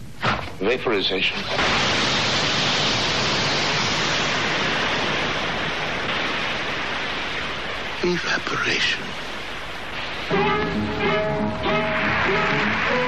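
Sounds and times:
loud hiss of jetting vapour: 0:01.4 - 0:10.5.

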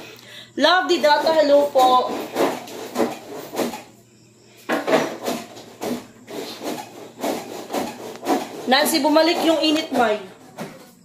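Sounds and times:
scraping strokes: 0:05.2 - 0:10.2.

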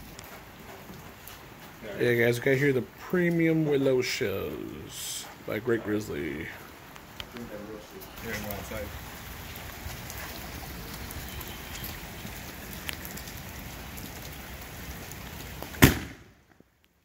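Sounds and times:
rain falling on pavement: 0:00.0 - 0:17.0
firework mortar boom: 0:15.8 - 0:16.3.

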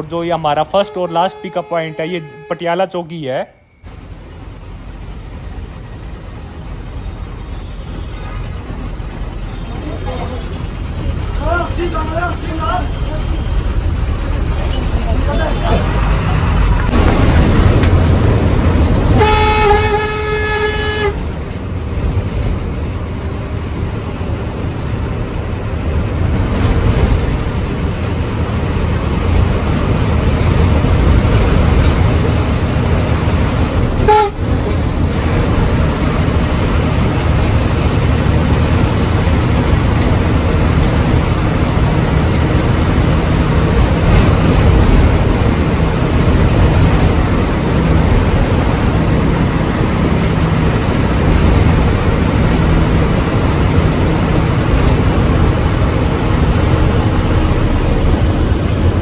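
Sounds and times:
bus engine and road rumble: 0:00.0 - 0:59.0
horn held note: 0:19.2 - 0:21.2, 0:34.1 - 0:34.4.

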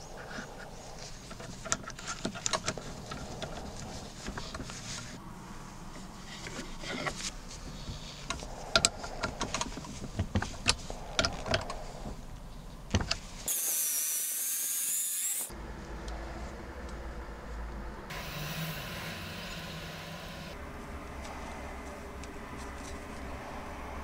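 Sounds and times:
high hiss: 0:18.1 - 0:20.6.

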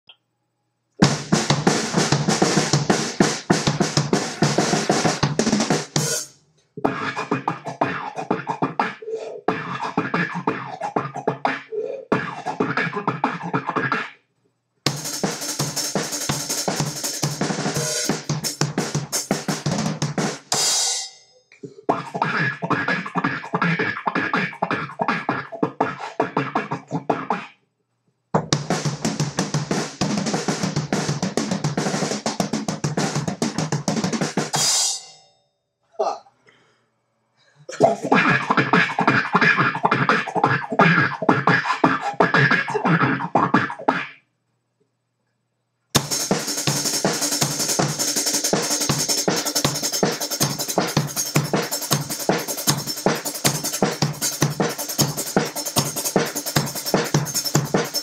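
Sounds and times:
drum kit playing: 0:01.0 - 0:06.3, 0:14.9 - 0:21.2, 0:28.4 - 0:35.2, 0:46.0 - 0:58.0
person beatboxing: 0:06.8 - 0:14.2, 0:14.9 - 0:16.6, 0:21.7 - 0:27.6, 0:37.7 - 0:44.2, 0:46.0 - 0:58.0.

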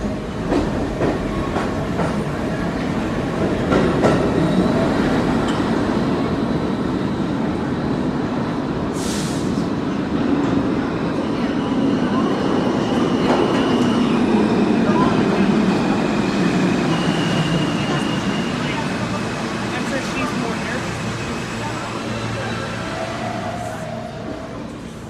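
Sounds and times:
subway train rumbling: 0:00.0 - 0:25.0
burst of hiss: 0:09.0 - 0:09.6.

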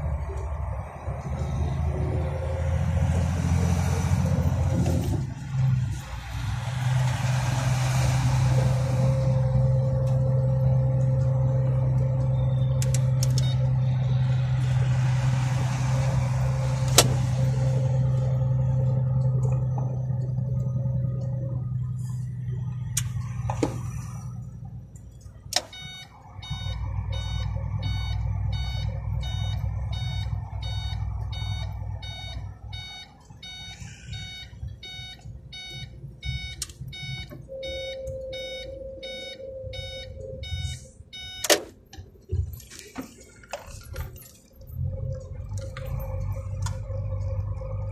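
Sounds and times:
truck diesel engine running: 0:00.0 - 0:47.9
electronic beeps: 0:10.7 - 0:14.6, 0:25.7 - 0:41.5.

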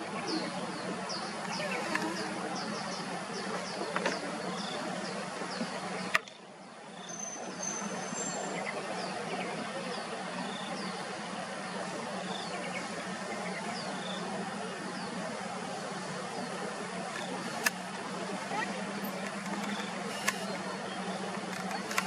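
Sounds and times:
steady background rush: 0:07.8 - 0:22.0
sharp click: 0:17.2 - 0:17.8, 0:19.1 - 0:20.5.

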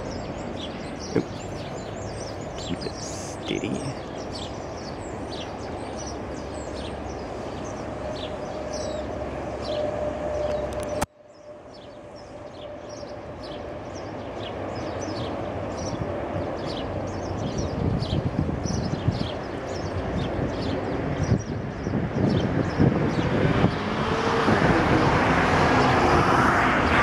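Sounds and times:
small birds chirping: 0:00.0 - 0:23.9
trolley rumbling along cable: 0:00.0 - 0:27.0.

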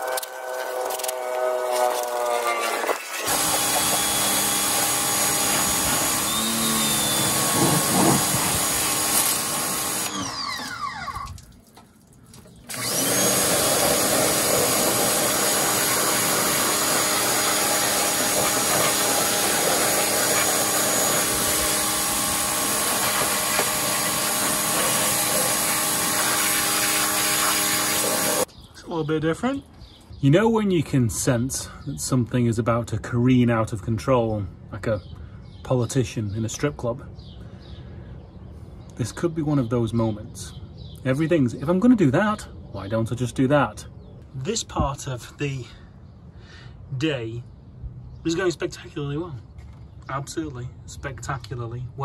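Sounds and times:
pressure washer spraying water: 0:00.0 - 0:11.1, 0:12.7 - 0:28.5.

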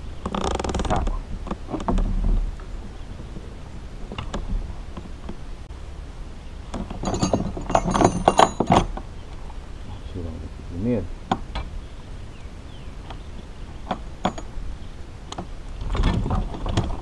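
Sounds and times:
sharp metallic clinks: 0:07.0 - 0:09.0, 0:14.2 - 0:14.6.

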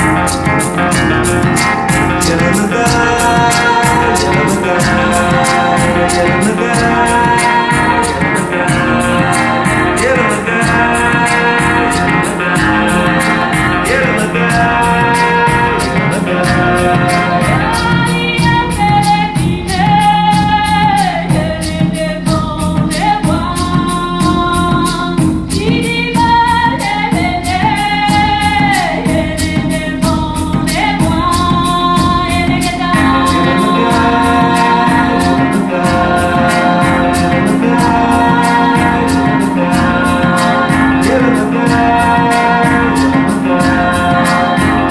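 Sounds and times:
person singing long notes: 0:00.0 - 0:44.9
quick percussion beat: 0:00.0 - 0:44.9.

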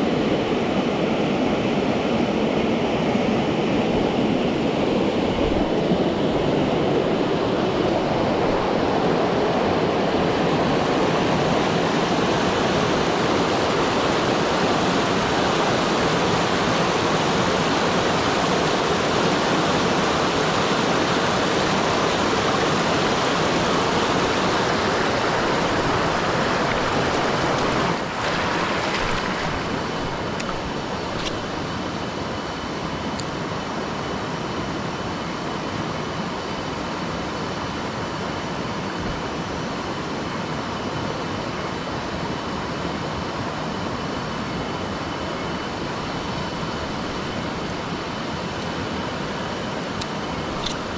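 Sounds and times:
water rushing over rapids: 0:00.0 - 0:34.0.

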